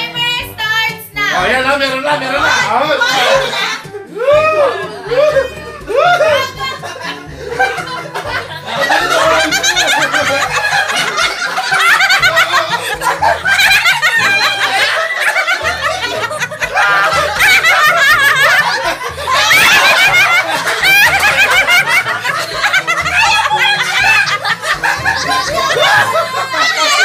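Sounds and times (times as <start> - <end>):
background music with bass: 0.0 - 27.0
women laughing loudly: 2.4 - 27.0.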